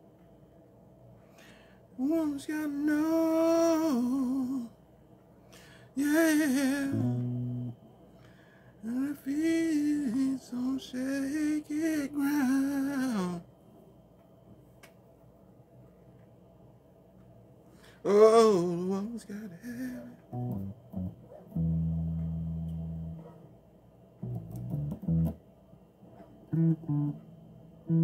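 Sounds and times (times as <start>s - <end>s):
man singing with vibrato: 2.0s - 4.8s, 5.9s - 7.8s, 8.8s - 13.5s, 18.0s - 20.7s.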